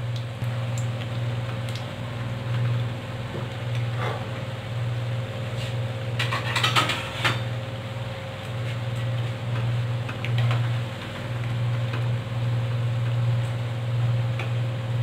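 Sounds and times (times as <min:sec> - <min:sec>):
food frying in hot oil: 0:00.0 - 0:07.6
steady low hum: 0:00.0 - 0:15.0.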